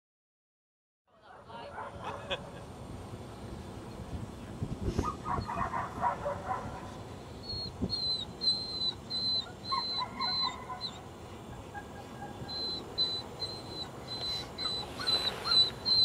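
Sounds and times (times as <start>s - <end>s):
dog whining: 7.4s - 11.1s, 11.7s - 16.0s.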